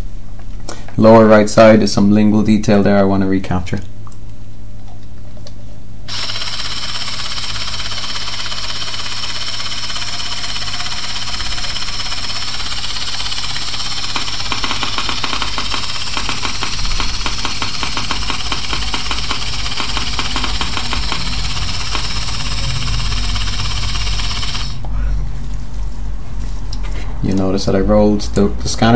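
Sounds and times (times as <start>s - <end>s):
fast buzzing rattle of clicks: 6.1s - 24.9s.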